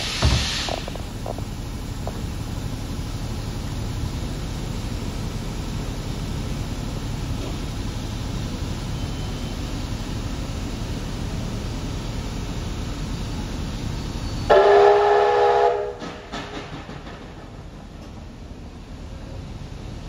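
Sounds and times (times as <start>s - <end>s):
train rumbling on rails: 0.0s - 20.0s
steam locomotive whistle: 14.2s - 16.5s.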